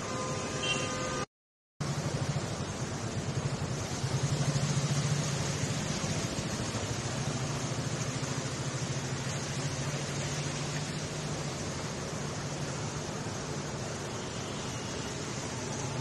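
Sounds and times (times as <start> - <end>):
motorcycle engine at low revs: 1.8 - 14.0
steady hiss: 1.8 - 16.0.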